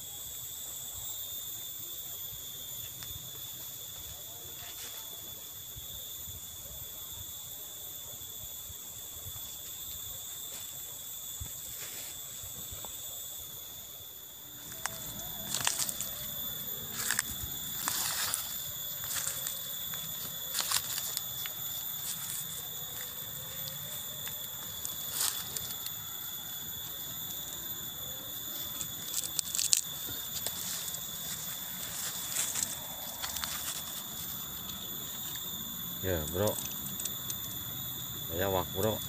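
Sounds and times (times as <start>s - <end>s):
high insect chirring: 0.0s - 39.0s
clicks of movement through twigs: 14.6s - 26.1s, 28.4s - 35.6s.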